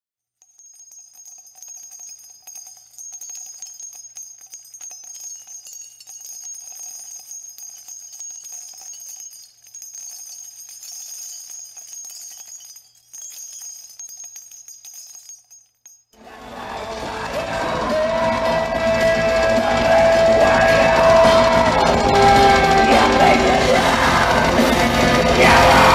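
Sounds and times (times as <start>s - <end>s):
steady high ringing tone: 0.4s - 16.2s
bell-like jingling and tinkling: 0.4s - 25.9s.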